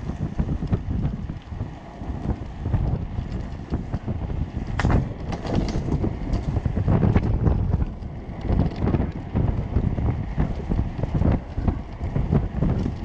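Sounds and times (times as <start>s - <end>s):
go-kart rolling on rough asphalt: 0.0s - 13.0s
wind buffeting microphone: 0.0s - 13.0s
rattling knocks from kart: 4.7s - 9.2s.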